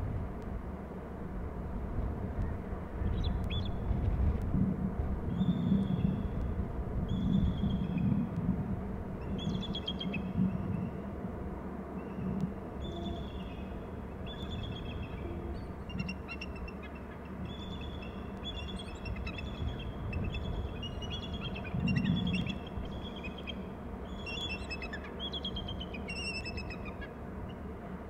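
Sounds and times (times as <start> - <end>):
low background rumble: 0.0 - 28.0
small birds chirping: 14.3 - 27.1.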